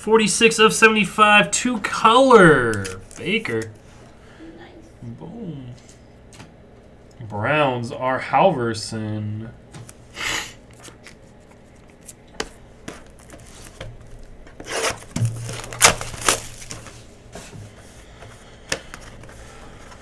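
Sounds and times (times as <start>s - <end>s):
cards handled on a table: 10.7s - 20.0s.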